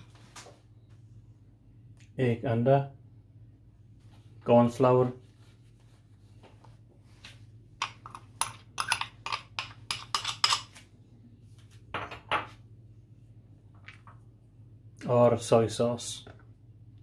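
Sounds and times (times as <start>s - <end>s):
metal spoon tapping bowl: 7.8s - 10.6s.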